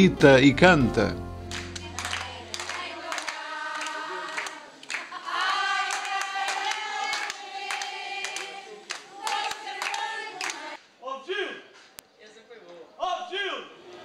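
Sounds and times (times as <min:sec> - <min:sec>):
hand-clapping in time: 0:01.5 - 0:10.7
women singing together: 0:01.8 - 0:10.8.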